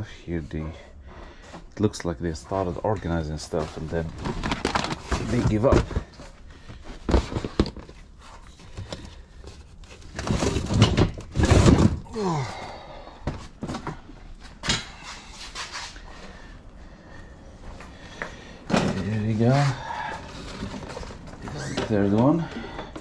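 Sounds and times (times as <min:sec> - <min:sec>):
items rattling: 0:02.5 - 0:12.5, 0:18.6 - 0:23.0
household items thumping and clattering: 0:03.6 - 0:08.0, 0:10.1 - 0:12.5, 0:18.7 - 0:23.0.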